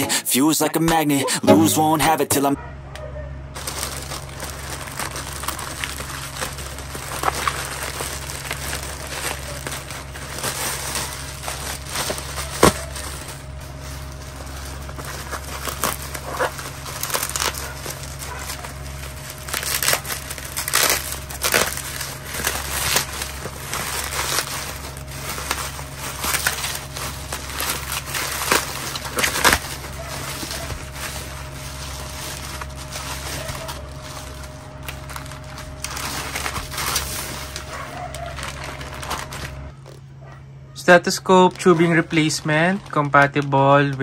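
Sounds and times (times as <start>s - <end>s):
plastic and bubble wrap crinkling: 3.5s - 44.0s.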